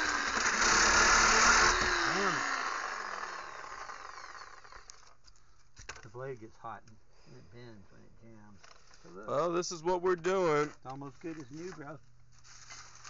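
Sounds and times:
reciprocating saw cutting metal: 0.0s - 5.1s.

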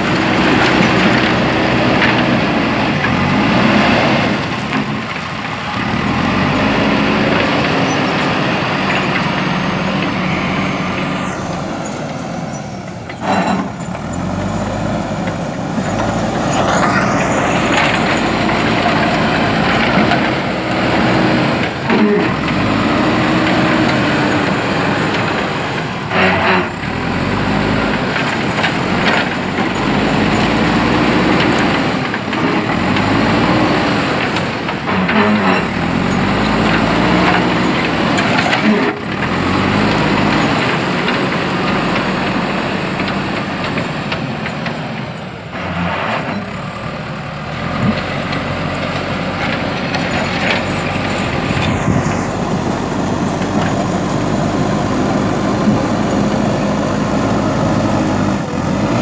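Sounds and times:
diesel engine under load: 0.0s - 59.0s
machine clanks: 13.0s - 14.2s.

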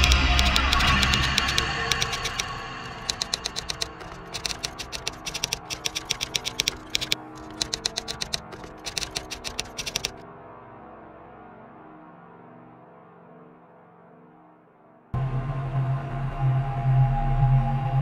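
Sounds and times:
keyboard key clicks: 0.0s - 10.2s
dark ambient music: 10.2s - 18.0s.

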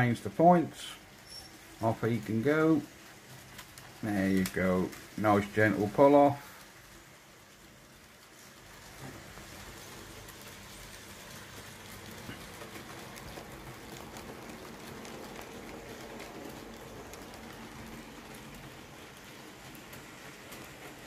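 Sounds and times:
model train wheels rattling: 0.0s - 21.0s.

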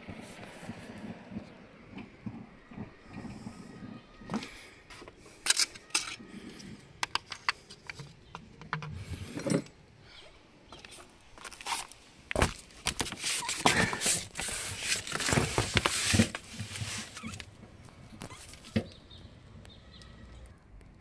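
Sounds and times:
clicks knocks and scrapes of handling: 10.7s - 17.5s.

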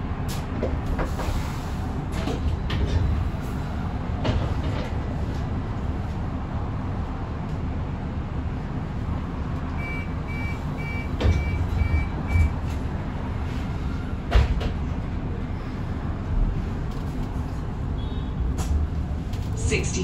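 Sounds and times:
bus interior low rumble: 0.0s - 20.0s.

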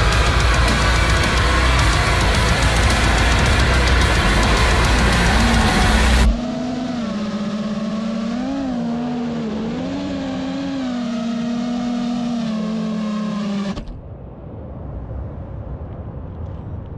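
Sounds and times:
low rumble: 0.0s - 7.1s, 13.8s - 16.9s.

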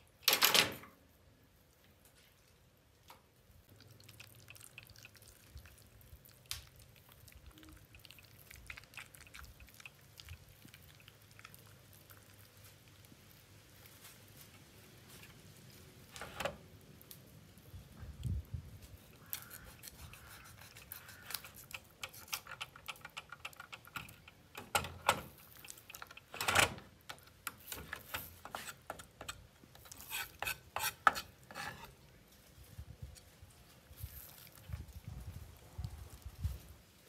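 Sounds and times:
knife scraping and tapping on board: 28.4s - 31.9s.

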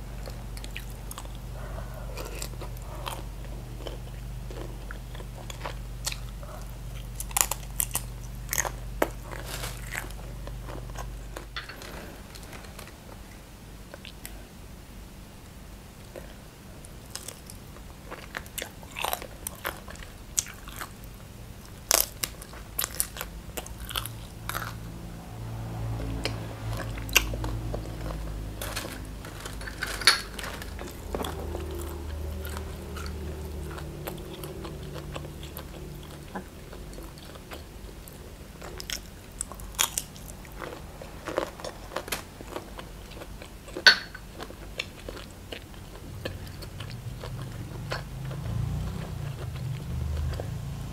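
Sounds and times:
biting and chewing: 0.0s - 13.2s, 17.1s - 25.0s, 25.6s - 50.8s
crisp vegetable crunches: 7.1s - 12.9s, 21.7s - 24.8s
low rumble: 23.5s - 43.3s.

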